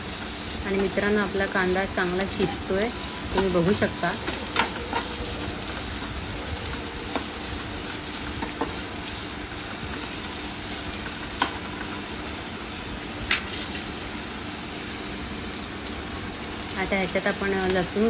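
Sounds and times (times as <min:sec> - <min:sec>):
onions sizzling in hot oil: 0:00.0 - 0:18.0.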